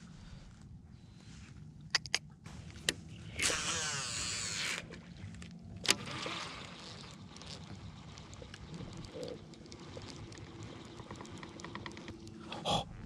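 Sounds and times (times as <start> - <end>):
reel engaging click: 2.8 - 12.4
reel spool whirring: 3.2 - 12.6
reel handle cranking whir: 3.3 - 12.6.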